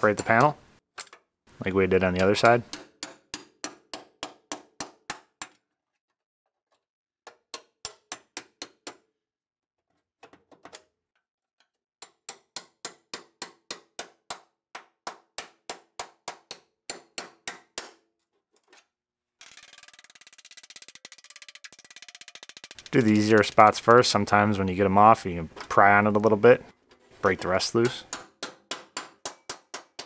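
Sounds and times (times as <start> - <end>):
hammer striking chisel on steel: 2.2 - 5.6, 12.0 - 18.0, 27.2 - 30.0.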